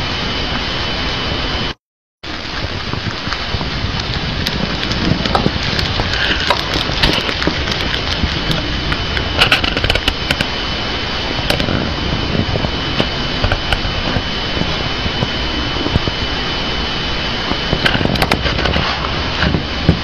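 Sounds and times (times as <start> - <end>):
steady rushing background noise: 0.0 - 20.0
hamster crunching food: 3.0 - 10.5.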